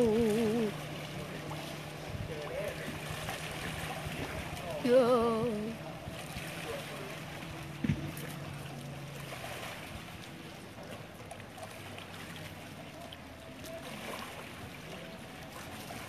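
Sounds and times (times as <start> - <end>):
low hum: 0.0 - 12.0
background noise wash: 0.0 - 16.0
faint distant voices: 0.0 - 16.0.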